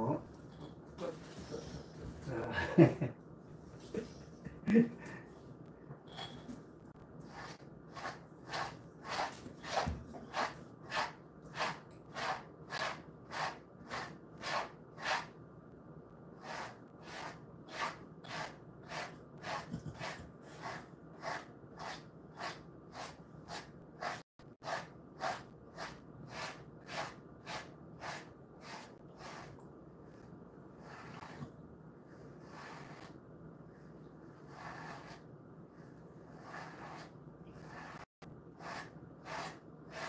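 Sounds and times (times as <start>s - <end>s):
brush swishing through dog fur: 7.2s - 15.3s, 16.4s - 29.6s.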